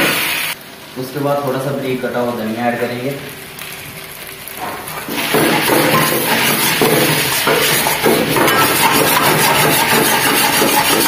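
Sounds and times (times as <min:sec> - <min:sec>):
steel ladle scraping metal wok: 0:05.1 - 0:11.0.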